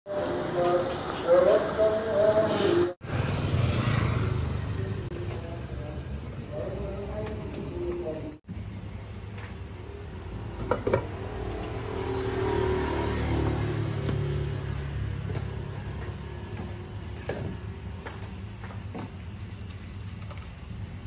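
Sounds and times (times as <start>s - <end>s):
vehicle engine passing by: 1.9s - 5.1s, 10.2s - 17.7s.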